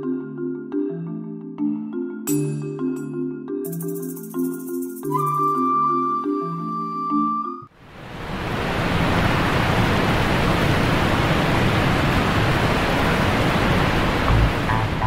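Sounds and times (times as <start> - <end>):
steady rushing noise: 7.8 - 15.0.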